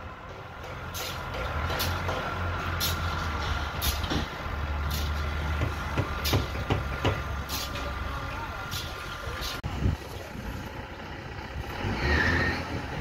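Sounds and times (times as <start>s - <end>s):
diesel crane engine running: 0.0s - 13.0s
sharp knocks: 5.5s - 7.3s.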